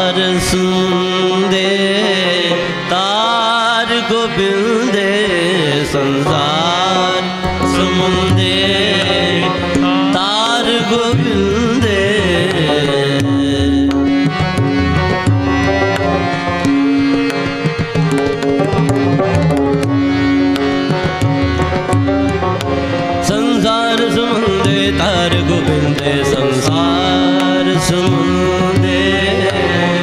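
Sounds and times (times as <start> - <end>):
person singing ornamented vocals: 0.0 - 14.1, 23.1 - 30.0
harmonium drone: 0.0 - 30.0
tabla: 0.0 - 30.0.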